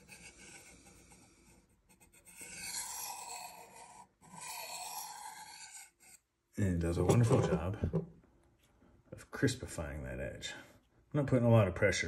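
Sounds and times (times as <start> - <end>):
knife scraping on honing rod: 2.0 - 6.2.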